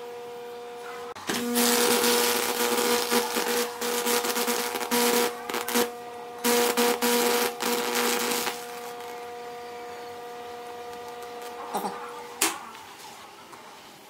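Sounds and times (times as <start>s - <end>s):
electrical hum: 0.0s - 14.0s
electricity arcing crackling: 1.2s - 9.3s.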